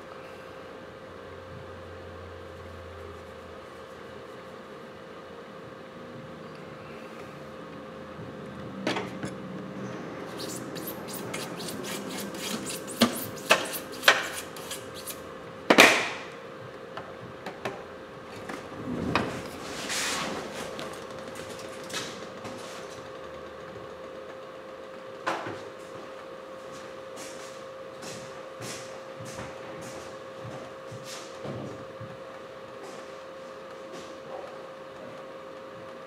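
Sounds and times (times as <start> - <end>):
faint continuous hum: 0.0 - 36.0
rubbing swishes: 10.3 - 15.2.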